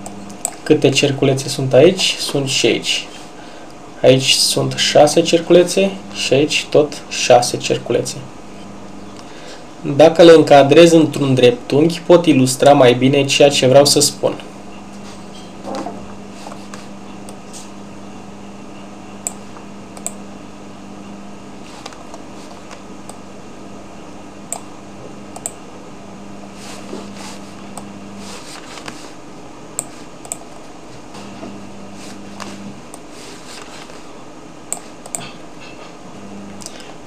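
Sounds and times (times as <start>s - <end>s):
low electrical hum: 0.0s - 37.0s
computer mouse clicking: 29.8s - 30.5s, 34.7s - 35.3s.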